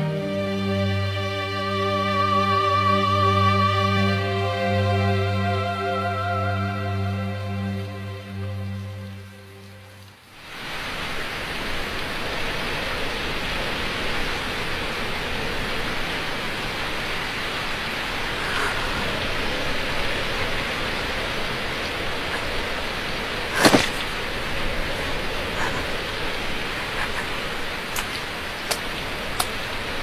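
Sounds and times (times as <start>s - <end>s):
soft music: 0.0s - 10.1s
water rushing: 6.9s - 30.0s.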